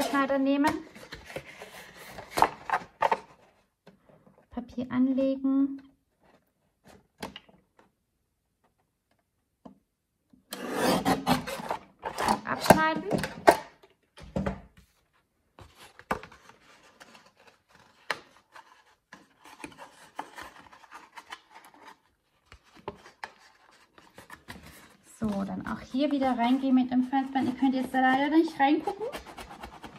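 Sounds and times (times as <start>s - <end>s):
paper cutter rasping scrape: 10.5s - 12.5s.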